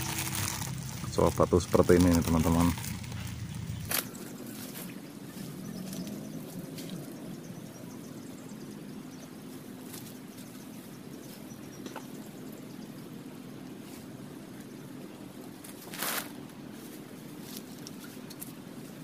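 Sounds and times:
faint rustles and clicks: 0.0s - 7.2s, 9.4s - 12.3s, 15.6s - 19.0s
low background hum: 0.0s - 19.0s.

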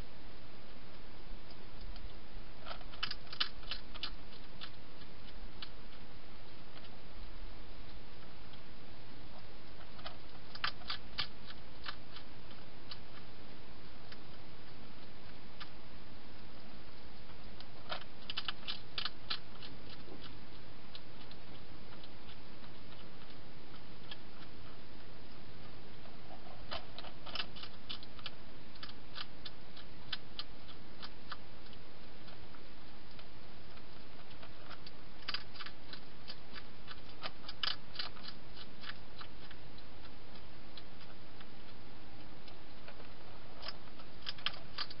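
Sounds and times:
hedgehog clicking mouth sounds: 1.8s - 6.0s, 10.0s - 13.3s, 17.4s - 24.5s, 26.7s - 41.8s, 42.4s - 45.0s.

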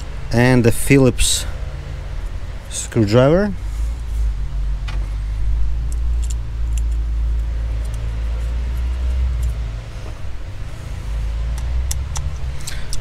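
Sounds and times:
steady low rumble: 0.0s - 13.0s
sharp ticks: 11.5s - 13.0s.

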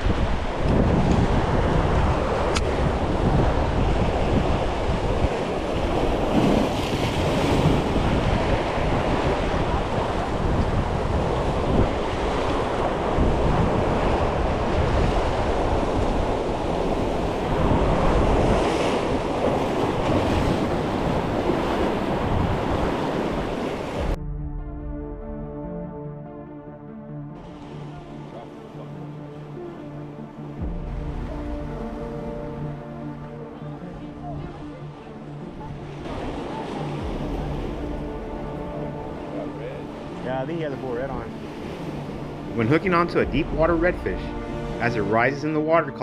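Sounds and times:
waves washing against jetty: 0.0s - 24.2s, 27.4s - 46.0s
wind buffeting microphone: 0.0s - 25.2s.

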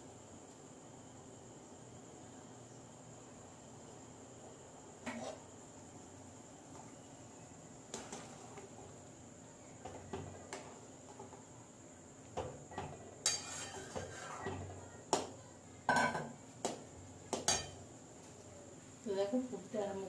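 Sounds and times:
metal spoon scraping metal pan: 13.2s - 14.6s.

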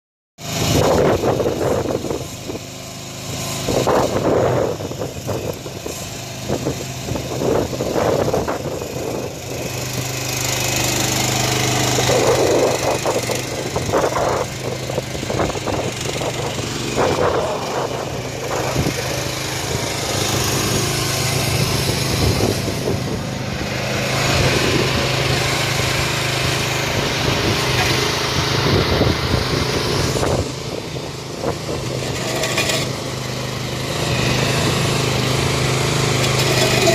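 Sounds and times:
small engine running: 0.4s - 36.9s.

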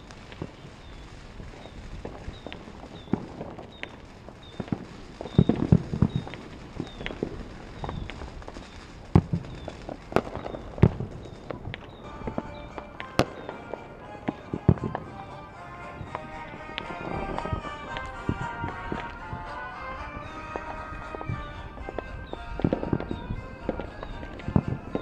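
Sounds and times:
fireworks bangs and crackles: 0.0s - 25.0s
sharp fireworks booms: 0.0s - 25.0s.

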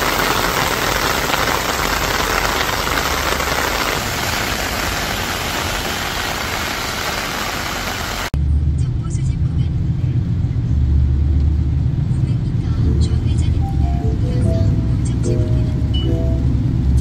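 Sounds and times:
heavy rain on pavement: 0.0s - 8.4s.

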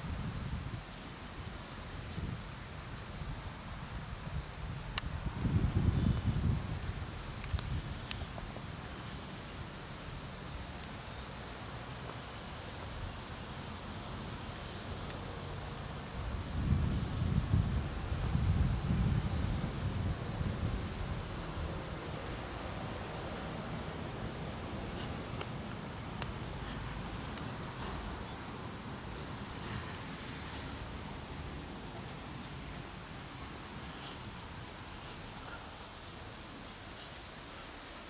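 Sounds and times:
insects droning: 0.0s - 38.0s
wind buffeting microphone: 3.2s - 8.5s, 16.1s - 22.9s.

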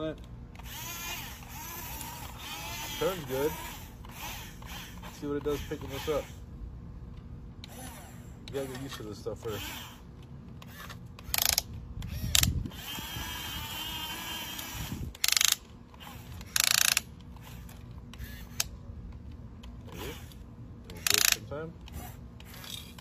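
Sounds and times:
small electric motors whirring: 0.0s - 6.6s, 7.6s - 23.0s
ratcheting clicks: 10.6s - 12.6s, 14.5s - 23.0s.

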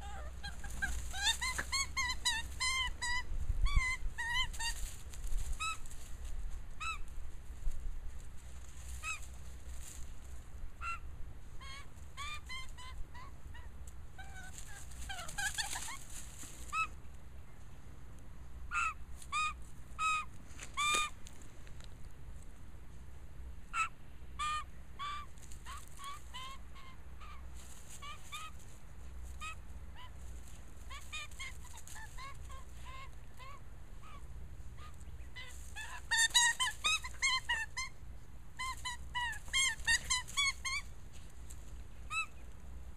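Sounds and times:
magpie squawking: 0.0s - 4.8s, 10.8s - 13.3s, 18.7s - 21.2s, 23.7s - 27.4s, 30.9s - 38.0s, 38.6s - 40.9s, 42.0s - 42.4s.

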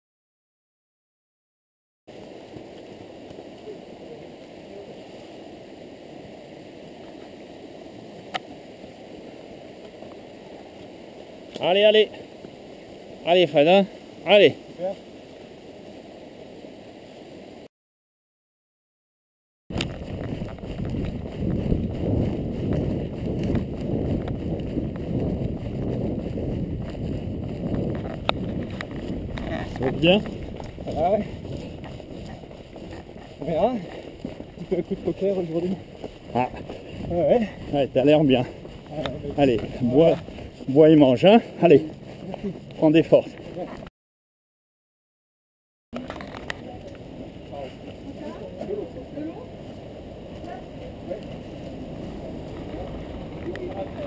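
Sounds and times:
running footsteps on asphalt: 7.0s - 13.2s, 19.7s - 43.9s, 46.1s - 54.0s
wind rushing on microphone: 19.7s - 43.9s.

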